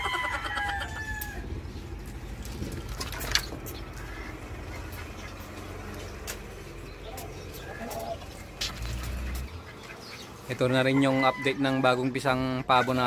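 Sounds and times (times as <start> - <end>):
steady low rumble: 0.7 - 10.5
poultry calling: 3.6 - 13.0.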